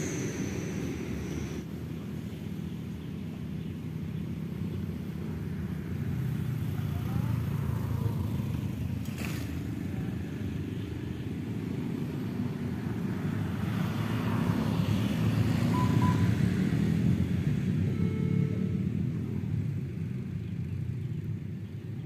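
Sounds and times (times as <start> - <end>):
outdoor background rumble: 0.0 - 22.0.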